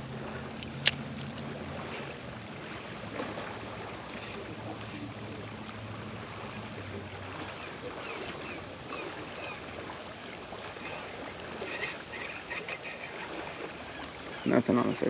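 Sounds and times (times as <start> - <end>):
fishing reel humming: 0.0 - 2.1, 4.0 - 14.7
fishing reel bail click: 0.3 - 1.5.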